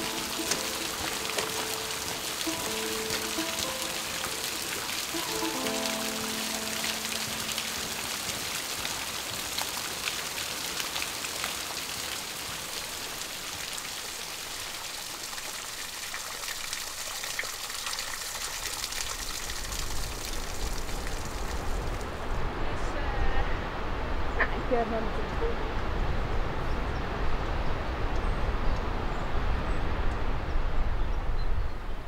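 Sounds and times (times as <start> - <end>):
water drops pattering: 0.0 - 10.1
falling water hiss: 0.0 - 28.0.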